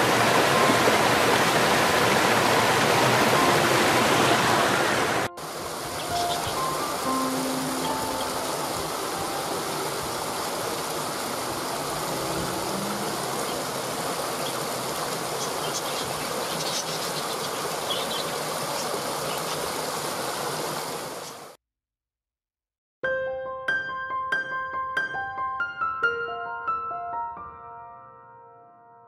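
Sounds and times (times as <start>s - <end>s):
water pouring over rocks: 0.0s - 21.5s.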